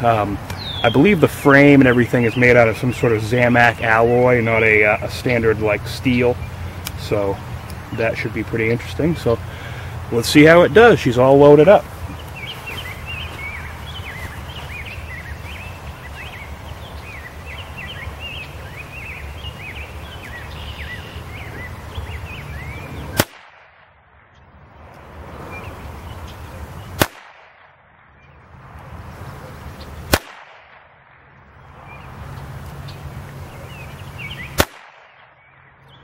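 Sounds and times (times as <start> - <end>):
small birds chirping: 0.0 - 23.3, 24.2 - 27.1, 31.4 - 36.0
low outdoor rumble: 0.0 - 35.2
revolver gunshots: 23.1 - 24.0, 27.0 - 27.8, 30.1 - 31.2, 34.6 - 35.5.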